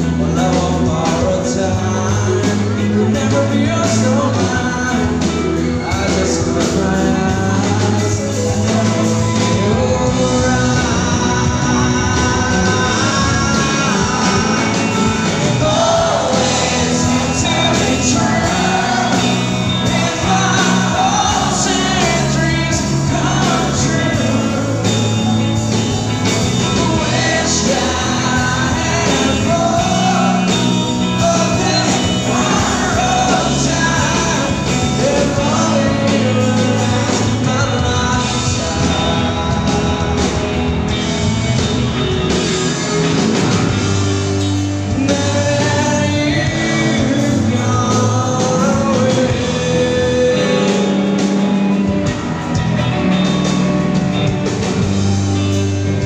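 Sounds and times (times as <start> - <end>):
person singing: 0.0 - 41.3, 44.6 - 53.5
bass guitar: 0.0 - 56.0
drums: 0.0 - 56.0
electric guitar: 0.0 - 56.0.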